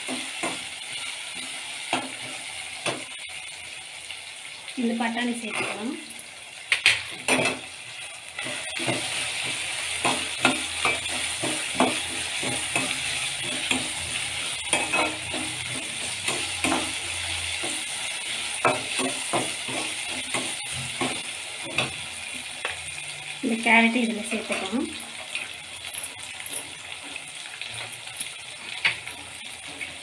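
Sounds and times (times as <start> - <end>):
food sizzling in oil: 0.0 - 30.0
metal spatula scraping a pan: 8.4 - 22.0.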